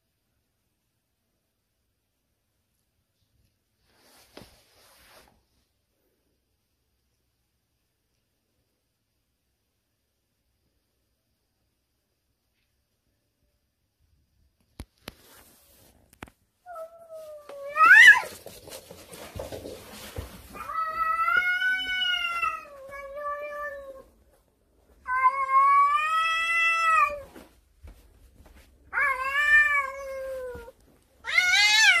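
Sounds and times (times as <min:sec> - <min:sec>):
cat meowing: 0:20.6 - 0:24.1, 0:25.0 - 0:27.3, 0:28.9 - 0:32.0.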